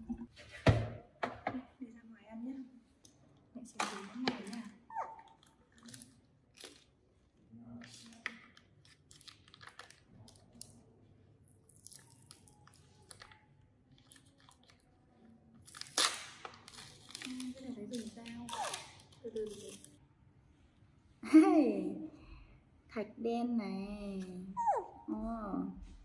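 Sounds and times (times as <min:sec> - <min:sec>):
plastic cup lid crinkling: 0:07.8 - 0:10.7.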